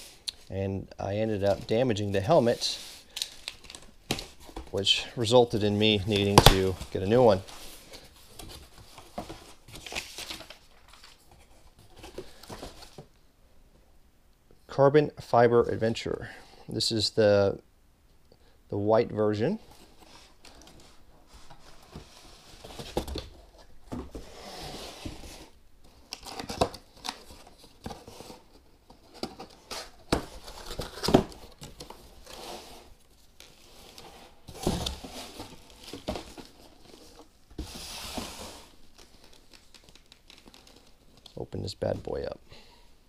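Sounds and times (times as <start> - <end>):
packaging rustling: 1.4 - 13.1, 19.7 - 41.4.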